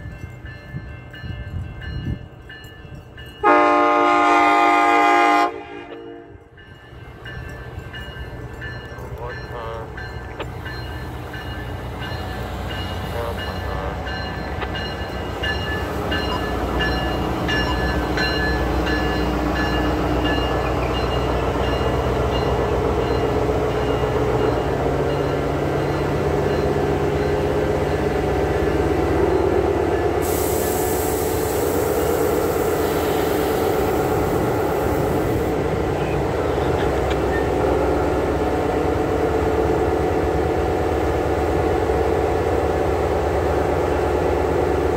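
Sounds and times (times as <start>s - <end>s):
train engine and wheels rolling: 0.0s - 44.9s
hiss: 30.2s - 35.5s.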